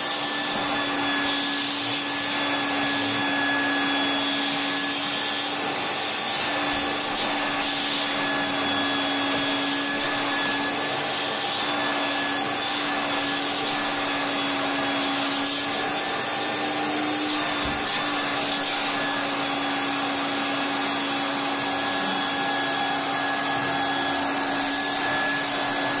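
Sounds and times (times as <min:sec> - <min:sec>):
vacuum motor whining: 0:00.0 - 0:26.0.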